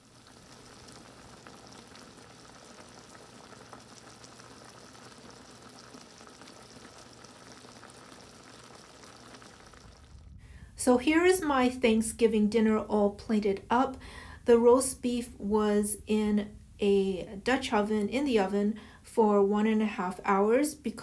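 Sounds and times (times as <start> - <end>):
liquid bubbling in a pot: 0.0 - 10.7.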